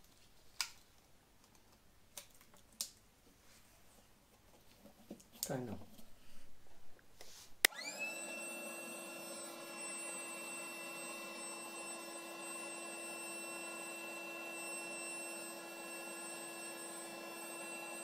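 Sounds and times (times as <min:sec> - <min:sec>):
air compressor motor whine: 0:07.7 - 0:18.0.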